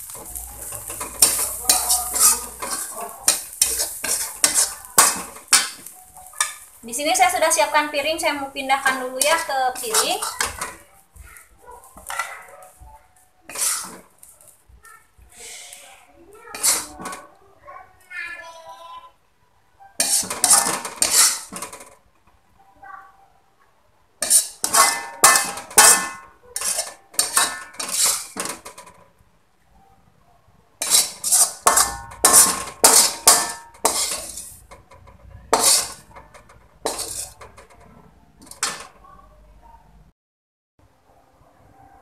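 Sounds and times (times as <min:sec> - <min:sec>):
metal spatula scraping wok: 0:00.0 - 0:12.9, 0:13.5 - 0:14.5, 0:15.3 - 0:17.3, 0:20.0 - 0:22.0, 0:24.2 - 0:29.0, 0:30.8 - 0:39.0.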